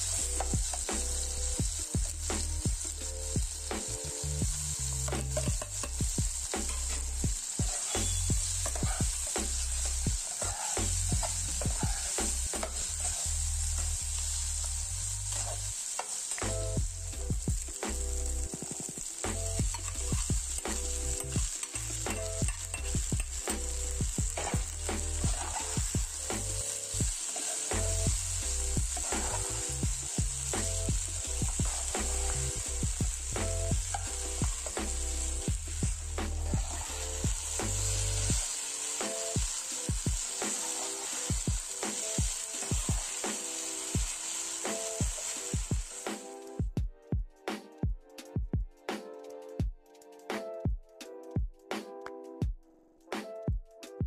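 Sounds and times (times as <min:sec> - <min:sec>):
vegetables sizzling in oil: 0:00.0 - 0:46.6
metal spatula scraping pan: 0:07.6 - 0:09.6, 0:10.2 - 0:13.9, 0:15.3 - 0:16.2, 0:19.7 - 0:23.4, 0:24.3 - 0:25.8, 0:36.3 - 0:37.6.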